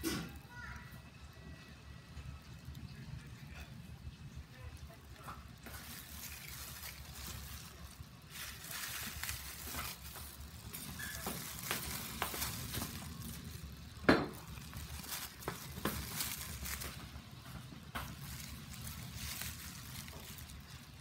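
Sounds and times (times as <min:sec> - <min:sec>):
plastic packaging crinkling: 0:05.0 - 0:21.0.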